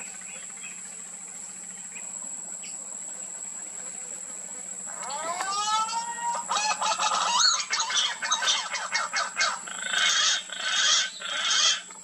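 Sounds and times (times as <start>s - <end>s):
harsh rasping bird calls: 4.9s - 12.0s
pigeons clicking and croaking: 5.0s - 12.0s.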